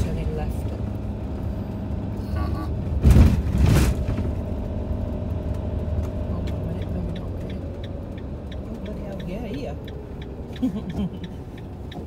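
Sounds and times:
campervan engine and road rumble: 0.0s - 12.0s
faint regular ticking: 5.4s - 12.0s.

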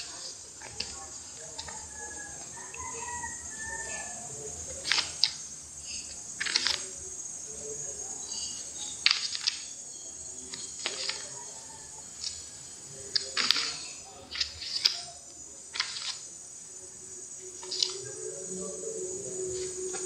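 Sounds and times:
notebook pages flipping: 4.8s - 5.3s, 6.4s - 6.8s, 10.6s - 11.3s, 13.1s - 15.0s, 15.7s - 16.2s.

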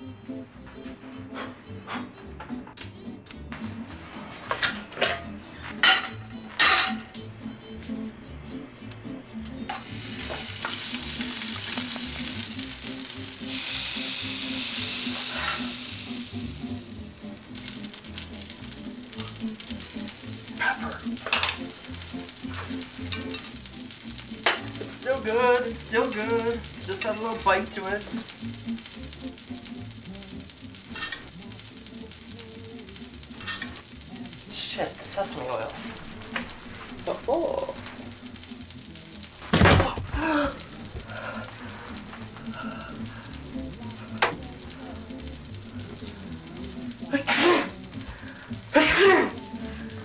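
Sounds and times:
food sizzling in a pan: 9.7s - 50.0s.

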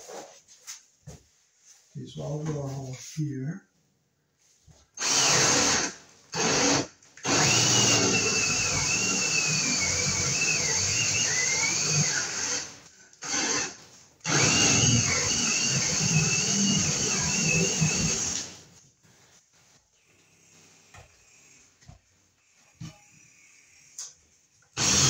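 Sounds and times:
cordless drill boring: 5.0s - 18.6s, 24.8s - 25.0s.

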